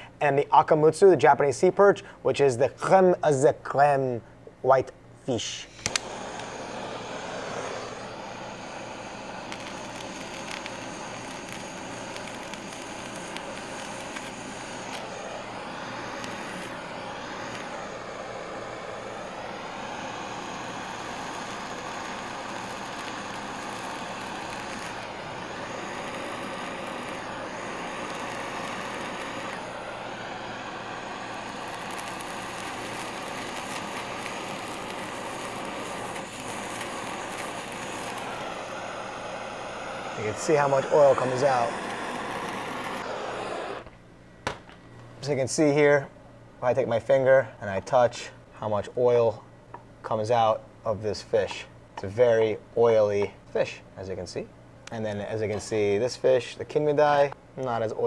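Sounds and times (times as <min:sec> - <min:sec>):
blowtorch hissing: 0:05.4 - 0:44.0.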